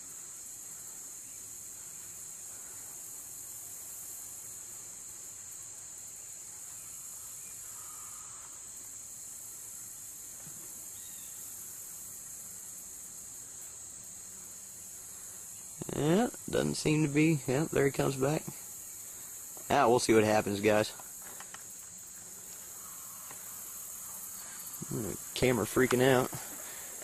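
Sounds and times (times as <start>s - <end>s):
insect chorus drone: 0.0s - 27.0s.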